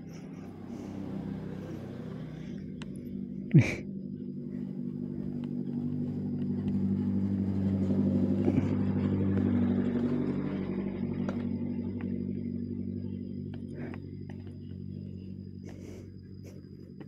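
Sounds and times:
vehicle engine running: 0.0s - 17.0s
light ticks: 2.6s - 3.1s, 5.3s - 6.9s.

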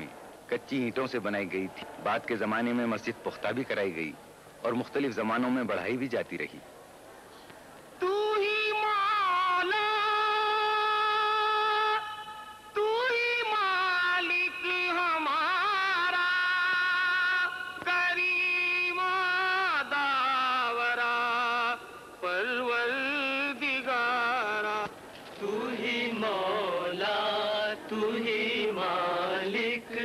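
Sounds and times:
person chanting a religious melody: 8.0s - 30.0s.

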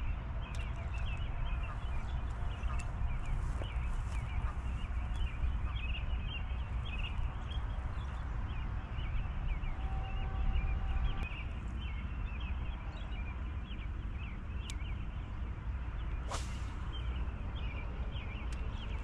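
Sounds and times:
brief swish: 16.3s - 16.9s.

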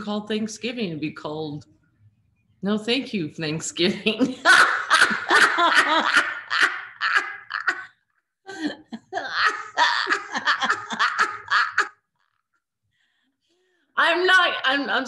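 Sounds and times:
women laughing: 4.1s - 7.9s, 8.5s - 12.0s.

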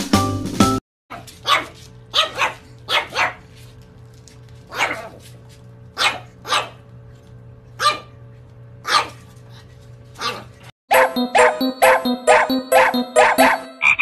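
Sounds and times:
puppy barking: 1.1s - 3.5s, 4.7s - 5.2s, 6.0s - 6.8s, 7.8s - 8.2s, 8.8s - 9.3s, 10.2s - 13.8s
rhythmic pitched sound: 10.9s - 14.0s.

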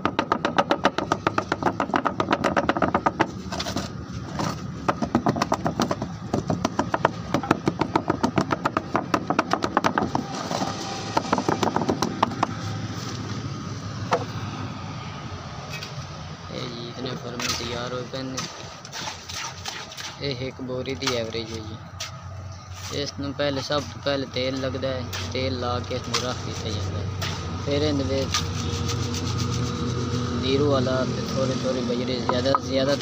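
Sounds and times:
rapid tapping and rattling: 0.0s - 12.6s.

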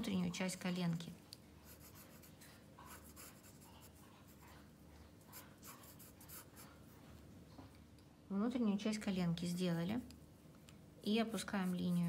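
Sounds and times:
pencil scratching on paper: 1.6s - 4.5s, 5.3s - 6.8s, 11.3s - 12.0s.

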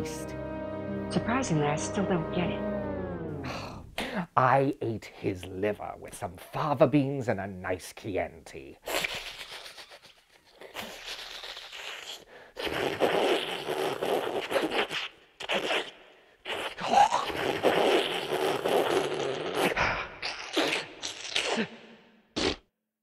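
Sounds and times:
man slurping through teeth: 8.8s - 21.8s, 22.4s - 22.6s.

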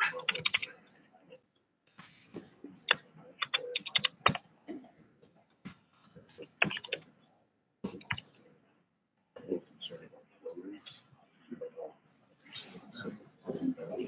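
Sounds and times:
keyboard and mouse clicks: 0.0s - 0.8s, 2.9s - 4.4s, 6.6s - 7.1s, 7.9s - 8.3s
quiet murmured talk: 0.0s - 7.1s, 7.8s - 14.0s.

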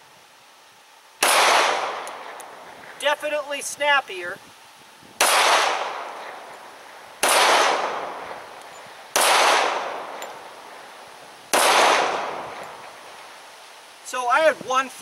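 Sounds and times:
pistol shots with echo: 1.2s - 2.4s, 5.2s - 6.5s, 7.2s - 10.7s, 11.5s - 12.8s.

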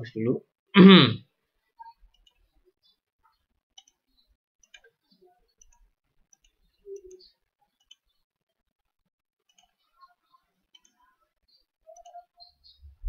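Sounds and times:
faint mouse clicks: 1.8s - 4.0s, 4.6s - 8.2s, 9.4s - 12.8s.

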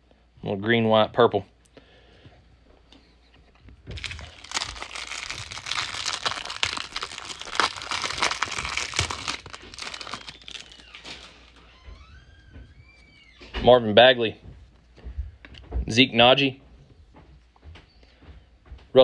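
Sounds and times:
plastic wrapper crinkling and tearing: 3.9s - 11.6s.

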